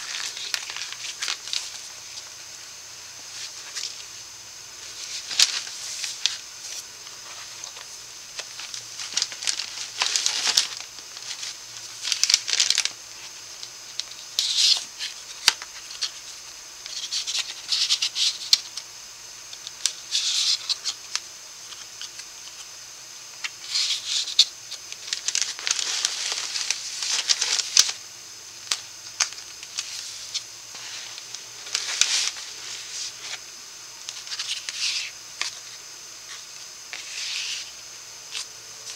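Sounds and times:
paper and card rustling: 0.0s - 2.4s, 3.2s - 4.2s, 4.8s - 18.8s, 19.6s - 22.7s, 23.4s - 28.0s, 28.7s - 38.9s.

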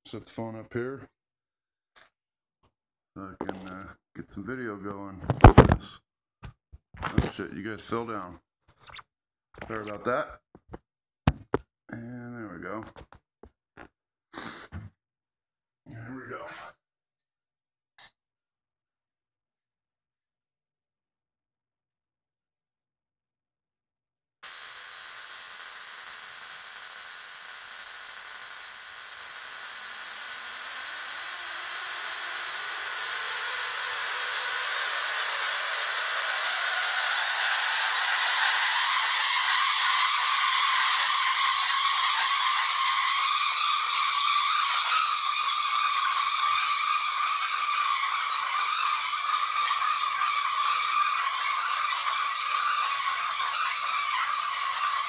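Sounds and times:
tesla coil arcs buzzing: 24.4s - 55.0s.

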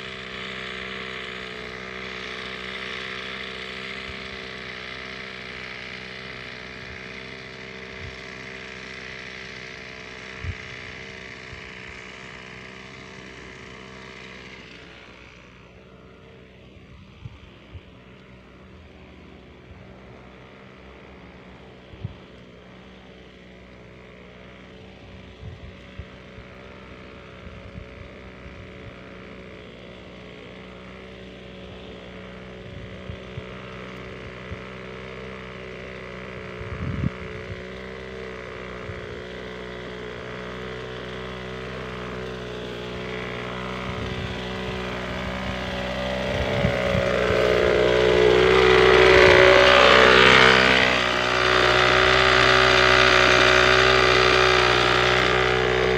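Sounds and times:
backpack sprayer engine running: 0.0s - 55.9s.

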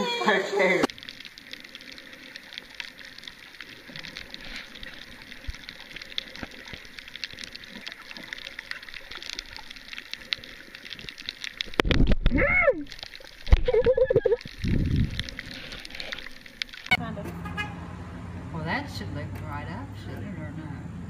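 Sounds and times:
faint hiss of water: 0.6s - 16.9s
underwater crackle of clicks: 0.9s - 16.9s.

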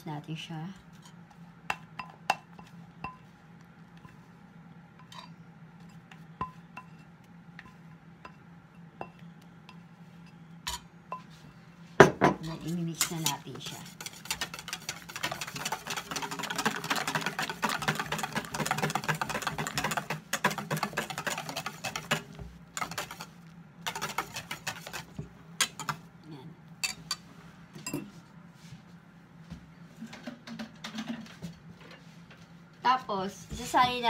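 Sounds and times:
whisk clinking in metal bowl: 13.0s - 26.0s.

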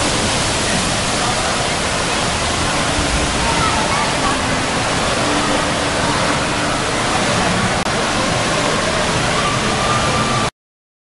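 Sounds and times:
faint children's voices: 0.0s - 10.5s
running water rushing: 0.0s - 10.5s.

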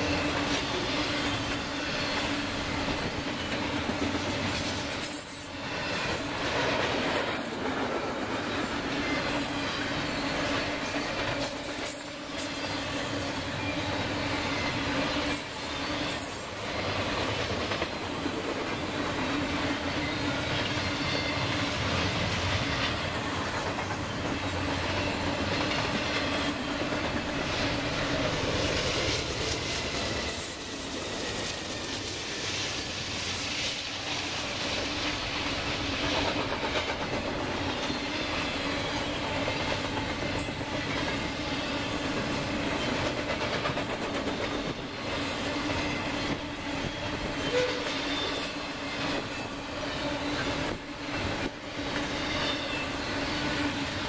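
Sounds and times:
diesel locomotives running by: 0.0s - 54.0s
freight train rolling past: 0.0s - 54.0s
steel wheels clattering on rails: 0.0s - 54.0s
faint thin wheel squeals: 46.8s - 48.6s, 52.1s - 53.4s.

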